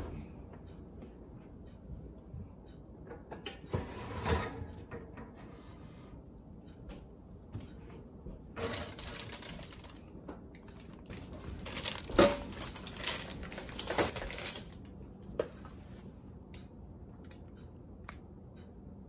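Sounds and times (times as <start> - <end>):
baking sheet scraping on oven rack: 3.7 - 6.1.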